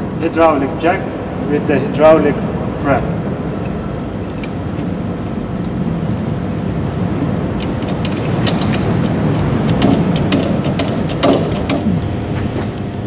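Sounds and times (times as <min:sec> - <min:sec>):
low machine hum: 0:00.0 - 0:13.0
metal clicks and knocks: 0:07.6 - 0:11.9.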